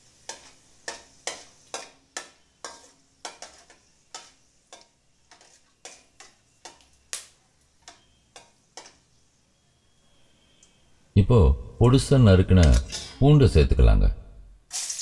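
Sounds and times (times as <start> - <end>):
chillies frying in oil: 0.0 - 10.0, 14.7 - 15.0
steel spoon scraping a metal pan: 0.2 - 7.0, 7.8 - 9.2, 12.6 - 13.2.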